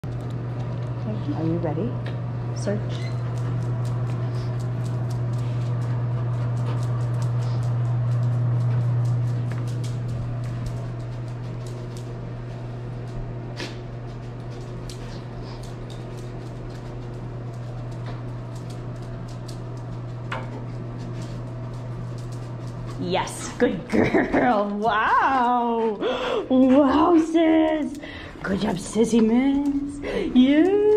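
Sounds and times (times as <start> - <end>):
low hum: 0.0 - 30.9
dog claws clicking on tiles: 14.5 - 20.1.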